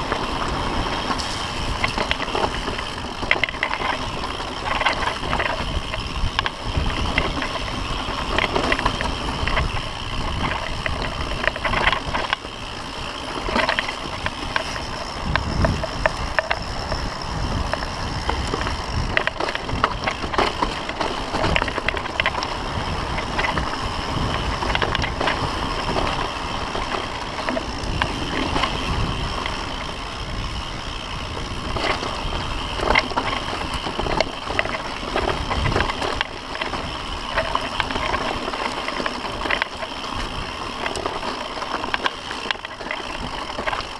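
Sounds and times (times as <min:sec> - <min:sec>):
bike clacking and rattling: 0:00.0 - 0:43.9
bike tyres rumbling on trail: 0:00.0 - 0:43.9.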